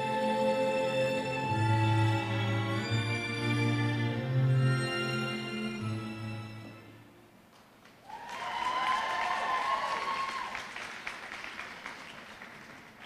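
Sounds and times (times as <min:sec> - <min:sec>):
audience applauding: 0:07.8 - 0:13.0
high cheer: 0:08.0 - 0:11.4.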